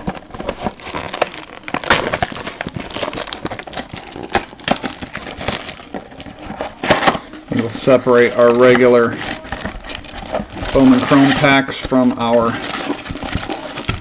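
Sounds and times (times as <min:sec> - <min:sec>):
plastic wrap crinkling: 0:00.0 - 0:14.0
plastic wrap snapping: 0:00.0 - 0:14.0.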